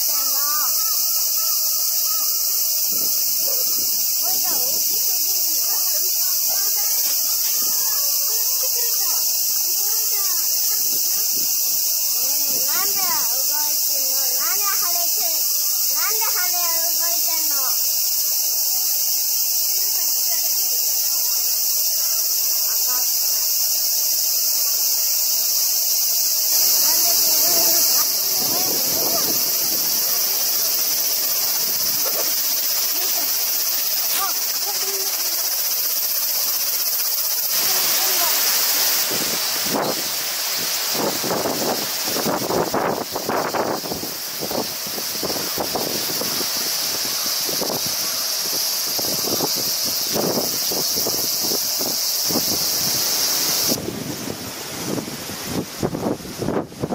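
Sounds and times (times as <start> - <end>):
faint voices: 0.0 - 17.8, 26.5 - 35.6, 37.5 - 40.0
high-pitched insect chorus: 0.0 - 56.9
wind gusts buffeting microphone: 26.4 - 35.3, 37.5 - 56.9.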